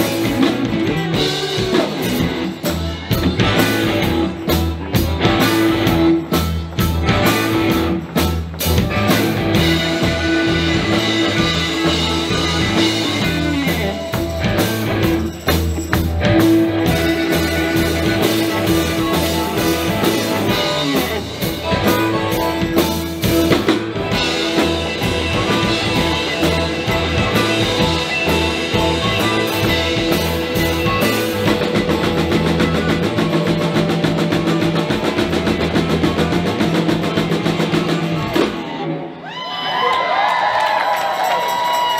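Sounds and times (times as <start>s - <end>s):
drum kit beat: 0.0s - 38.8s
bass guitar: 0.0s - 39.2s
electric guitar: 0.0s - 41.9s
amplified harmonica notes: 16.3s - 21.0s.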